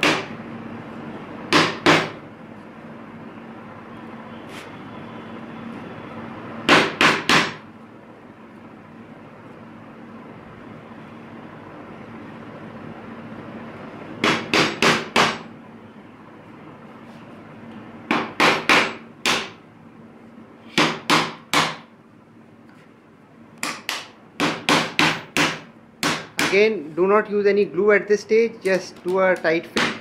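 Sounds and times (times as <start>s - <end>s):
hammer tapping wood: 18.1s - 19.6s, 23.6s - 26.6s, 29.1s - 30.0s.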